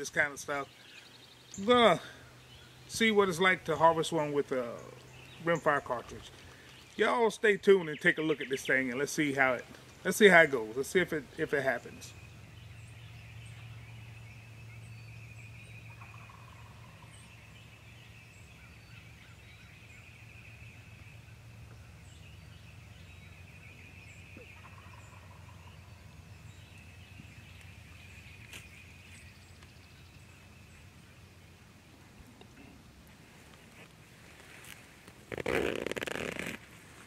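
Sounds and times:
faint songbird chirps: 0:00.0 - 0:36.6
turkey gobbling: 0:24.4 - 0:25.6.

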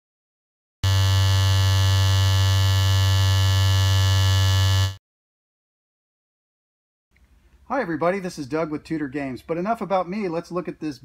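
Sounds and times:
vibrating metal game field buzzing: 0:00.8 - 0:05.0.

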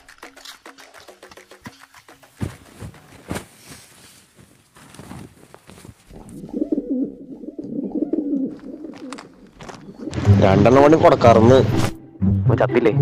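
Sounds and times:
scuffling: 0:01.6 - 0:06.5, 0:08.4 - 0:10.0
pigeons cooing: 0:06.0 - 0:10.4.

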